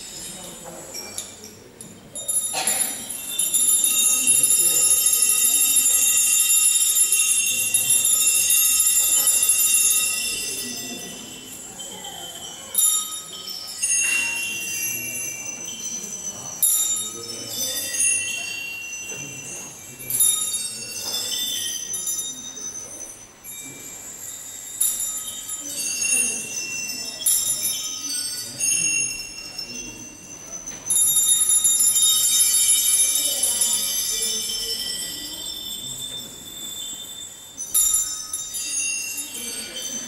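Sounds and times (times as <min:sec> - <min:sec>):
small metal bells jingling: 0:00.0 - 0:40.0.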